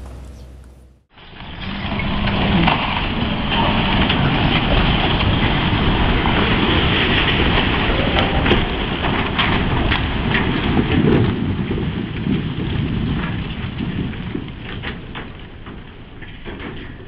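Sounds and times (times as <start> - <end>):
rumble of crumbling masonry: 0.0 - 17.0.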